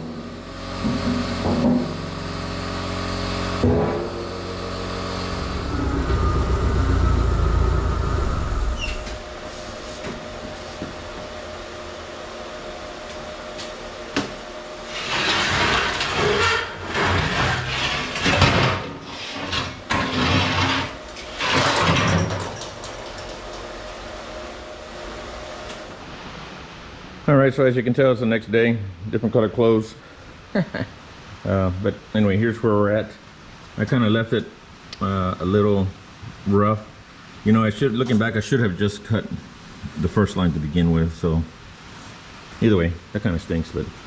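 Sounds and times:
forklift engine revving: 0.3s - 18.5s.

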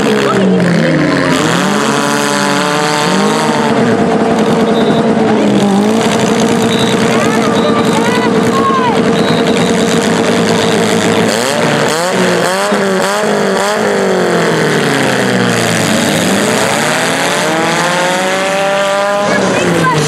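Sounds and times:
car engines revving: 0.0s - 20.0s.

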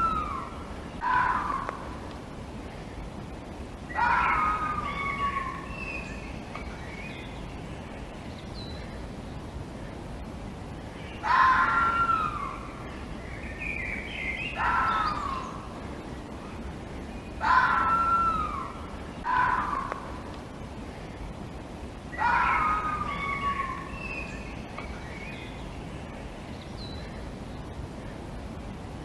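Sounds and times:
fox whining cries: 0.0s - 1.8s, 3.9s - 5.8s, 17.4s - 20.0s, 22.1s - 24.1s
steady background hiss: 0.0s - 29.0s.

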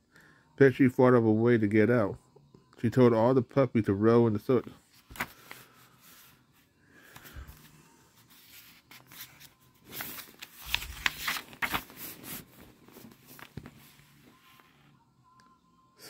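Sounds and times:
book pages being turned: 4.7s - 15.0s.

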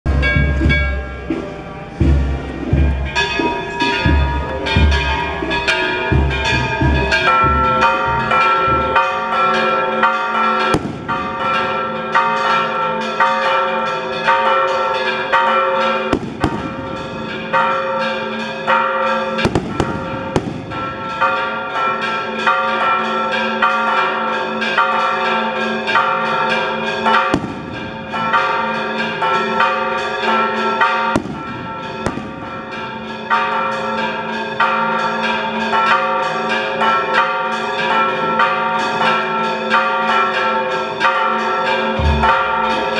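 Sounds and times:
church bells pealing: 0.1s - 42.9s
sharp bangs: 19.5s - 21.2s, 42.0s - 42.9s.

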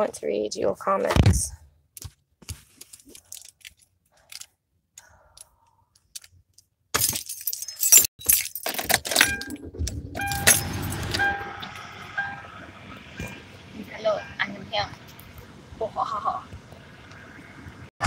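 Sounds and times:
car keys jangling: 2.8s - 4.5s, 5.4s - 11.5s
car engine running: 9.2s - 17.9s
short repeating tone: 10.2s - 12.5s.

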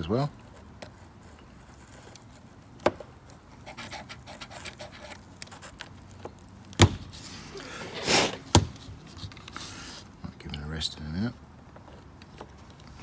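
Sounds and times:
handling noise: 0.0s - 10.0s.

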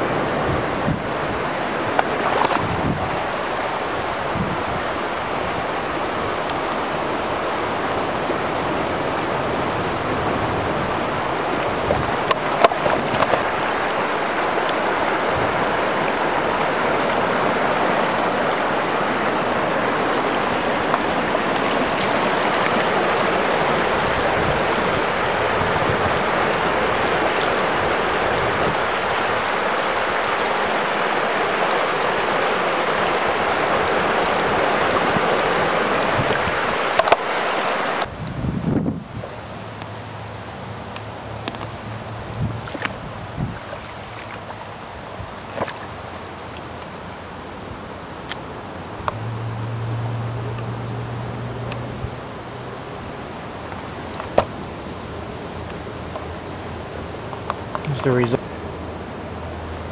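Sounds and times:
river water rushing over rocks: 0.0s - 59.9s.

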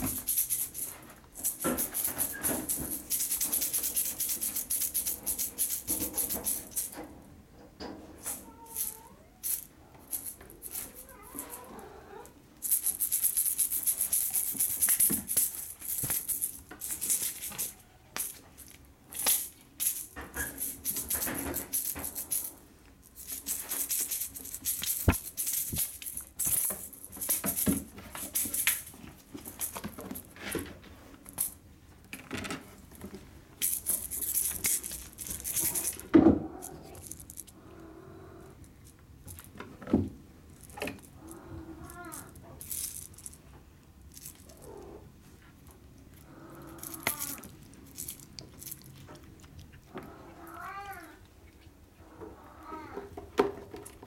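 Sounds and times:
cat toy rattling: 0.0s - 7.0s, 8.2s - 30.6s, 33.6s - 37.6s, 40.5s - 45.0s, 46.2s - 49.3s.

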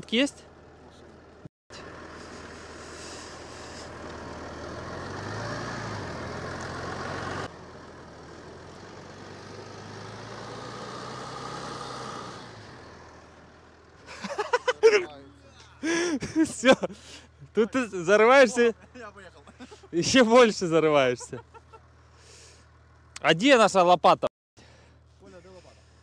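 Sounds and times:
diesel engine revving: 0.4s - 15.1s, 15.7s - 23.2s
tyres spinning hiss: 1.9s - 4.4s.

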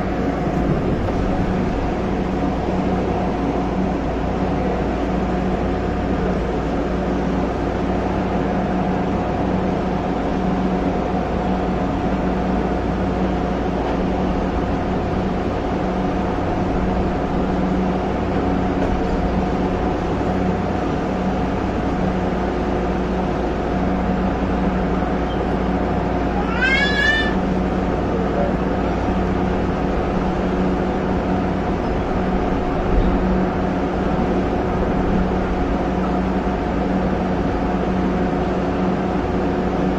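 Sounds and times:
train motor hum: 0.0s - 39.9s
train rolling rumble: 0.0s - 39.9s
short rising squeal: 26.4s - 27.4s.

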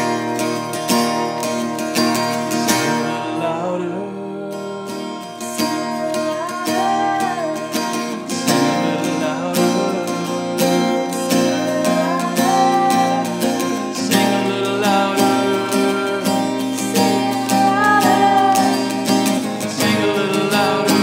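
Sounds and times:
acoustic guitars strumming: 0.0s - 21.0s
voices singing: 5.6s - 21.0s.

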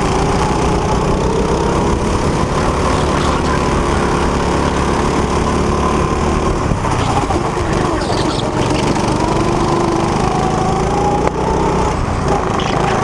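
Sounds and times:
go-kart engine running: 0.0s - 13.0s.

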